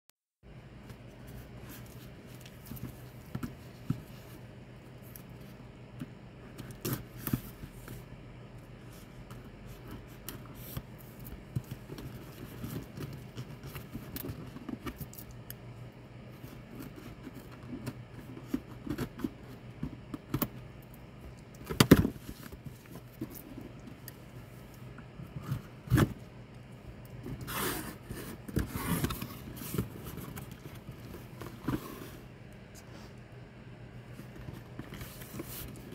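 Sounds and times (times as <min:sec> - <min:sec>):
cardboard clicks and scrapes: 0:27.2 - 0:32.3
cardboard flaps scraping: 0:27.2 - 0:32.3.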